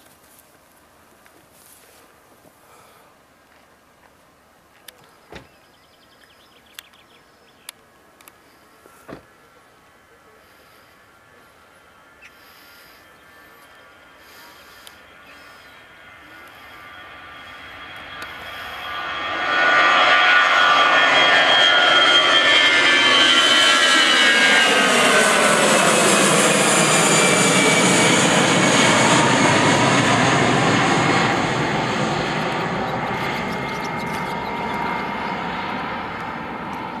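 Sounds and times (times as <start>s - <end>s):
jet engines passing overhead: 7.7s - 37.0s.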